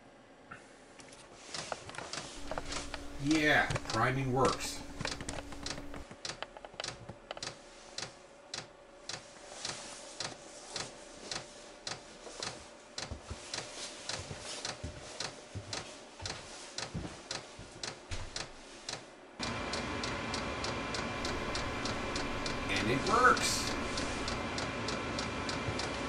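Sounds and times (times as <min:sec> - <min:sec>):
fuel pump ticking: 0:02.4 - 0:06.0, 0:21.2 - 0:24.4
faint steady hum: 0:02.4 - 0:06.7, 0:19.4 - 0:26.0.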